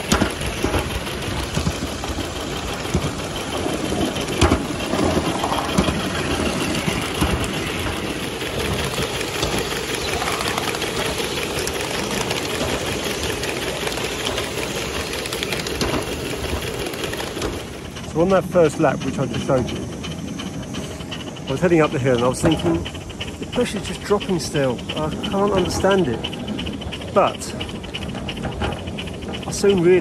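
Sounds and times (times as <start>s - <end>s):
model steam locomotive running: 0.0s - 30.0s.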